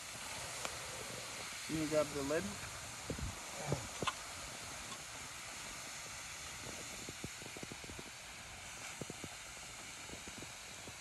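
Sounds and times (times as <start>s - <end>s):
hot rocks sizzling in water: 0.0s - 11.0s
small pops: 3.1s - 5.1s.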